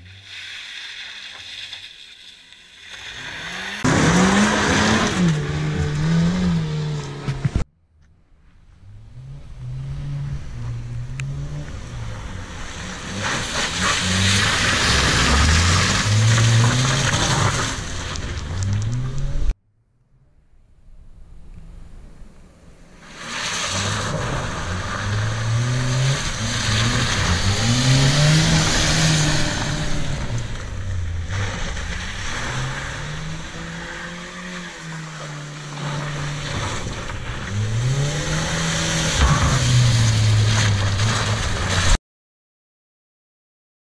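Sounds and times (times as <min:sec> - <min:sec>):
tyre and road noise: 0:00.0 - 0:42.0
car engine revving: 0:02.8 - 0:07.7, 0:08.7 - 0:19.6, 0:21.3 - 0:42.0.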